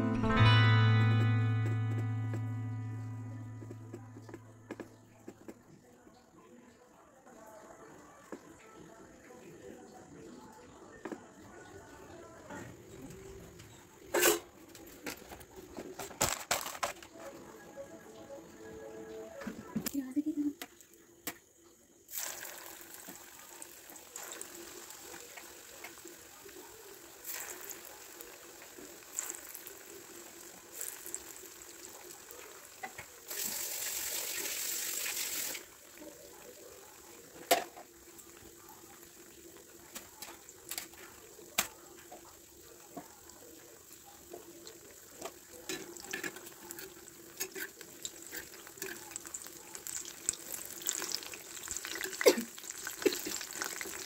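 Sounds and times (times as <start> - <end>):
oil sizzling while deep-frying: 17.4 - 54.0.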